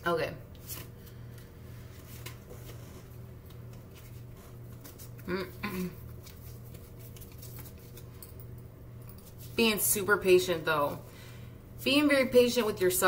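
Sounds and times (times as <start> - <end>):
steady low hum: 0.0 - 13.0
cards rustling and clicking: 6.0 - 8.1.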